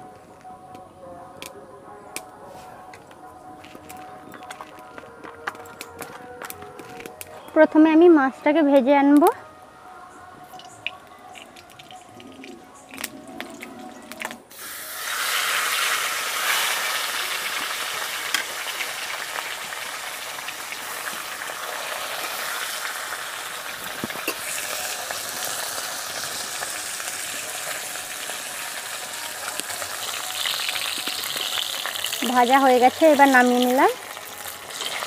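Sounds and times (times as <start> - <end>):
oil popping: 10.5 - 28.3
fish frying in hot oil: 14.5 - 35.0.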